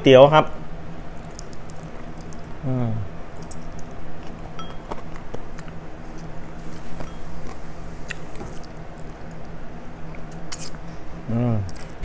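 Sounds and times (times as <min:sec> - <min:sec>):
low hum: 0:00.0 - 0:12.0
sucking and nibbling food: 0:01.1 - 0:02.6, 0:03.3 - 0:10.8, 0:11.7 - 0:12.0.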